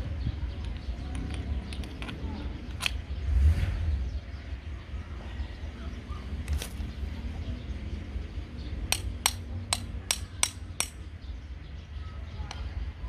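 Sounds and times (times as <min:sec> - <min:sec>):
metal parts clicking: 0:00.6 - 0:03.0.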